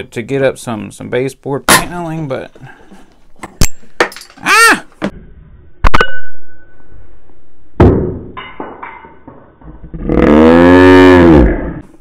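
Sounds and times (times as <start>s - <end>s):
short pitched cry: 4.4s - 4.9s
object ricocheting and ringing: 5.8s - 7.0s
loud knock: 7.8s - 9.5s.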